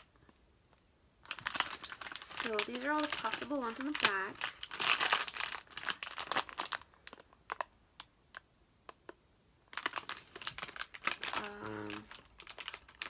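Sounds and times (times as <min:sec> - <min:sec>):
foil packet crinkling: 0:01.2 - 0:07.7, 0:09.7 - 0:13.0.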